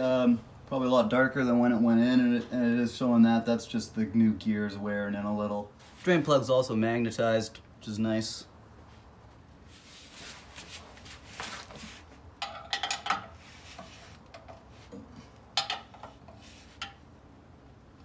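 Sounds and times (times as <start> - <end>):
wrench clinking on bolts: 12.4 - 13.4.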